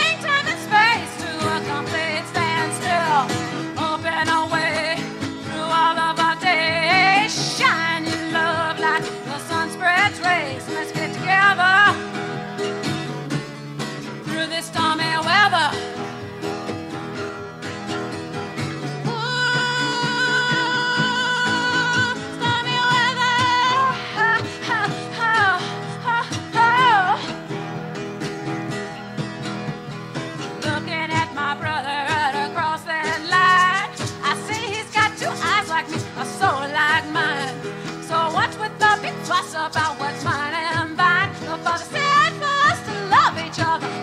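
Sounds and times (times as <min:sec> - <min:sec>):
woman singing with vibrato: 0:00.0 - 0:12.1, 0:14.3 - 0:15.9, 0:19.0 - 0:27.4, 0:30.6 - 0:44.0
plucked string accompaniment: 0:00.0 - 0:44.0
sustained instrumental backing: 0:27.2 - 0:30.7.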